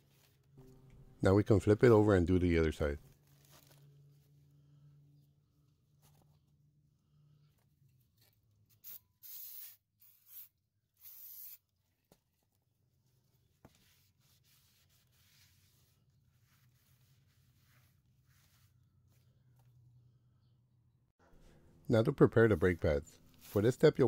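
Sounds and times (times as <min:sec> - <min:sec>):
aerosol spray hissing: 0:08.8 - 0:11.6.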